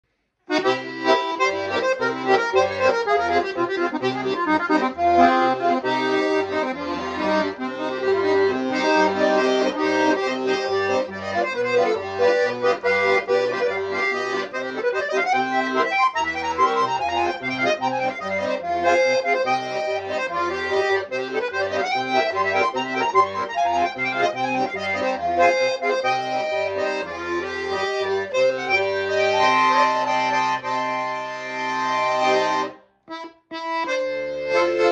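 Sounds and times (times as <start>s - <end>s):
button accordion playing: 0.5s - 34.9s.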